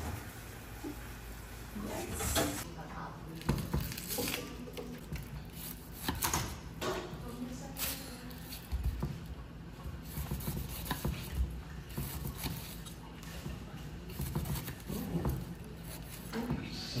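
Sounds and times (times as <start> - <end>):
knife slicing pineapple rind: 3.4 - 6.6, 10.0 - 13.0, 14.0 - 16.5.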